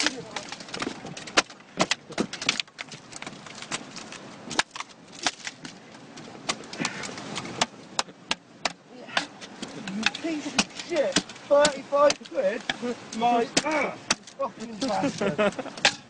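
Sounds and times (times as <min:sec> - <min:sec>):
fish flopping on wet rocks: 0:00.0 - 0:16.0.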